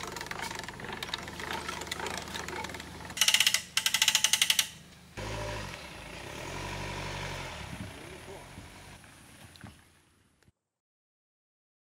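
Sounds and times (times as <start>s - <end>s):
winch ratcheting clicks: 0.0s - 4.8s
car engine humming: 0.0s - 10.4s.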